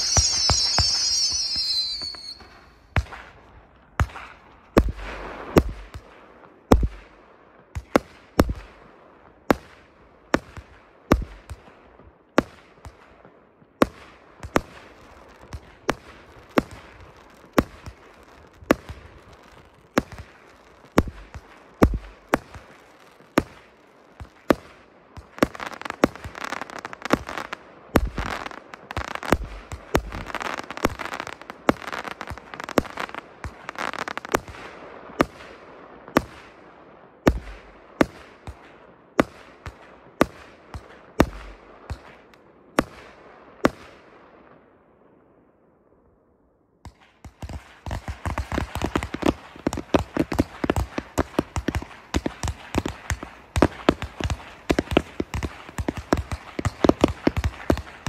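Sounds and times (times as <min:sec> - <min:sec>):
firework bangs: 0:00.0 - 0:06.1, 0:13.8 - 0:36.5, 0:47.3 - 0:58.0
firework crackling: 0:00.0 - 0:06.1, 0:14.4 - 0:34.8, 0:47.4 - 0:58.0.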